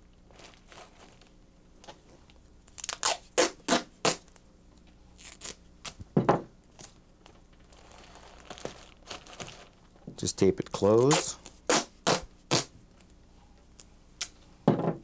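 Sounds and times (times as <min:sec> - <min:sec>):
adhesive tape ripping off roll: 0:02.7 - 0:04.4, 0:05.2 - 0:06.0, 0:07.7 - 0:09.8, 0:10.8 - 0:12.7.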